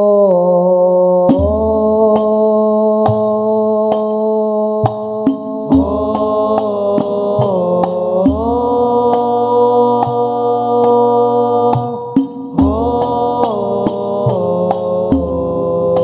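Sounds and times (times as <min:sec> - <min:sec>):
boys singing together: 0:01.1 - 0:16.0.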